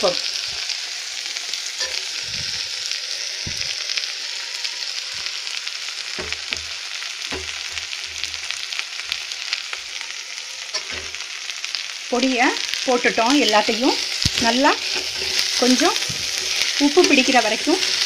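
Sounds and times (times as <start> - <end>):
vegetables sizzling in oil: 0.0 - 18.0
metal spoon scraping pot: 14.3 - 18.0.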